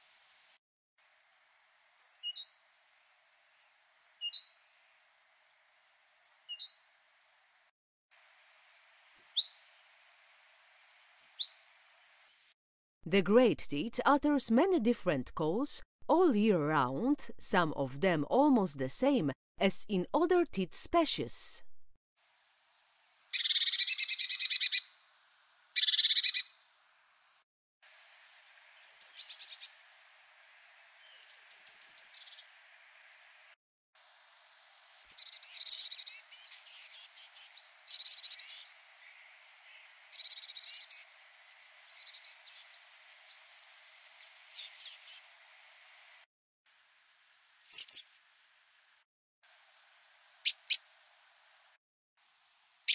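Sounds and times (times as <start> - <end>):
short repeated bird calls: 23.3 - 24.9, 25.8 - 26.6, 35.0 - 42.8, 43.7 - 45.3, 47.7 - 48.1
bird harsh rasping churrs: 25.8 - 26.5, 47.7 - 48.1, 50.5 - 50.8
high sharp ticking bird notes: 47.7 - 48.1.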